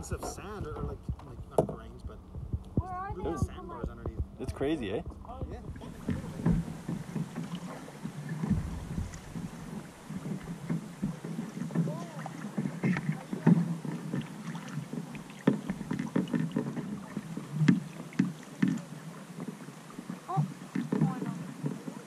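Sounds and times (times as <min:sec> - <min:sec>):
paddle stroke splashes: 0:00.0 - 0:22.0
water lapping against canoe hull: 0:00.0 - 0:22.0.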